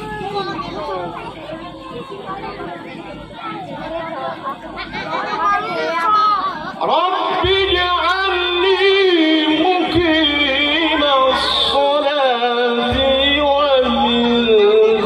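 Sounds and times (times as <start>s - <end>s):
man chanting into microphone: 6.9s - 15.0s.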